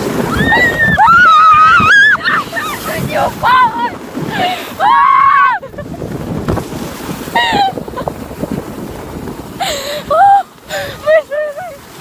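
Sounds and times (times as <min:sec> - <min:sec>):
tube sliding over snow: 0:00.0 - 0:12.0
wind on microphone: 0:00.0 - 0:12.0
girls shrieking and squealing: 0:00.2 - 0:05.8.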